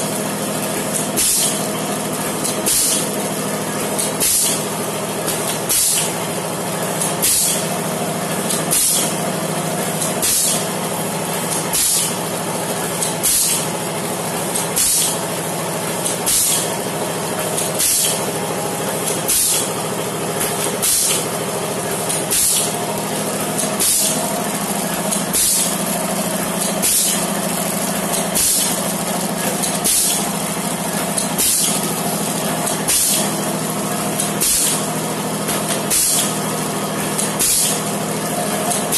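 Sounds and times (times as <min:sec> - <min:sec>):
packing machine humming: 0:00.0 - 0:38.9
pneumatic air hiss: 0:01.2 - 0:01.7, 0:02.6 - 0:03.1, 0:04.0 - 0:04.6, 0:05.3 - 0:06.2, 0:07.2 - 0:07.6, 0:08.7 - 0:09.1, 0:10.2 - 0:10.7, 0:11.5 - 0:12.2, 0:13.0 - 0:13.7, 0:14.6 - 0:15.2, 0:16.2 - 0:16.7, 0:17.7 - 0:18.2, 0:19.3 - 0:19.7, 0:20.4 - 0:21.2, 0:22.1 - 0:22.8, 0:23.8 - 0:24.2, 0:25.2 - 0:25.7, 0:26.8 - 0:27.2, 0:28.4 - 0:28.8, 0:29.8 - 0:30.3, 0:31.4 - 0:31.8, 0:32.8 - 0:33.3, 0:34.4 - 0:34.9, 0:35.9 - 0:36.3, 0:37.2 - 0:37.9.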